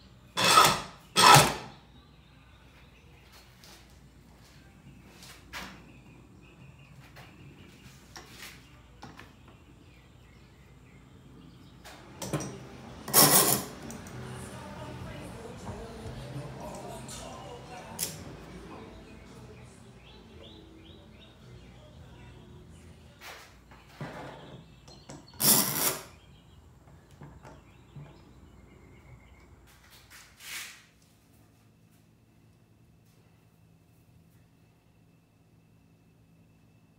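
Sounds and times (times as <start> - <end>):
loud clamp scrape: 0.4 - 1.6, 13.1 - 13.8, 25.4 - 26.1.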